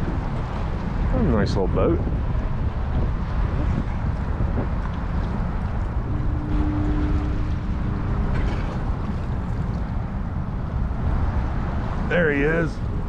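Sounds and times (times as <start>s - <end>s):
wind buffeting microphone: 0.0s - 13.0s
faint steady hum: 4.8s - 12.0s.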